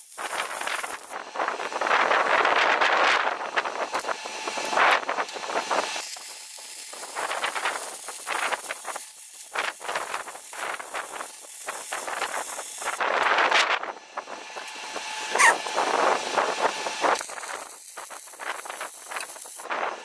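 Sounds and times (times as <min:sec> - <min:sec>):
welding arc crackling and hissing: 0:00.0 - 0:20.0.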